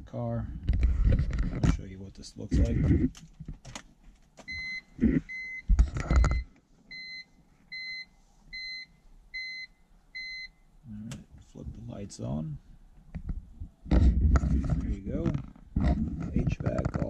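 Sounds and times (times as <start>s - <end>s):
car warning chime beeping: 4.5s - 10.6s.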